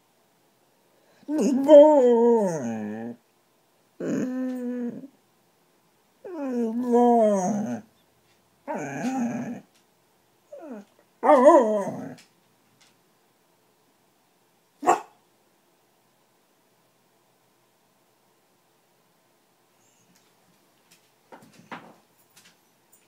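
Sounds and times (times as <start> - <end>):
dog moaning: 1.3 - 3.2, 4.0 - 5.2, 6.2 - 7.9, 8.7 - 9.7, 10.5 - 12.2.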